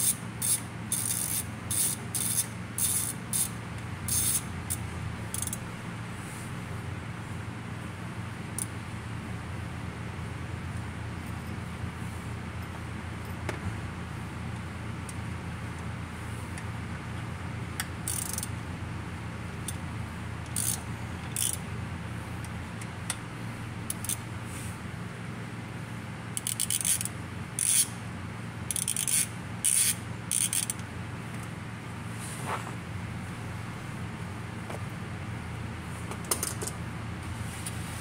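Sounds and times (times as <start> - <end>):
socket ratchet clicking: 0.0 - 3.5, 4.1 - 4.4, 5.3 - 5.6, 17.8 - 18.5, 20.4 - 21.6, 23.9 - 24.2, 26.4 - 27.9, 28.7 - 30.8
steady low hum: 0.0 - 38.0.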